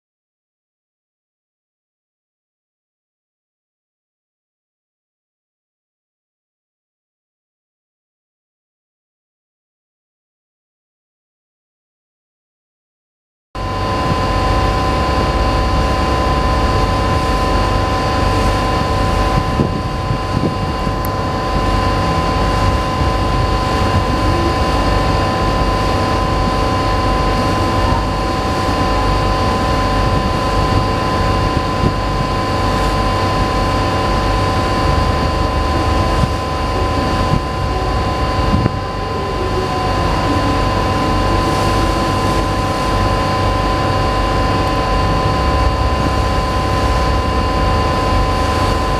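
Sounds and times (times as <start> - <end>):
high-pitched engine whine: 13.6 - 48.9
ship engines low rumble: 13.6 - 48.9.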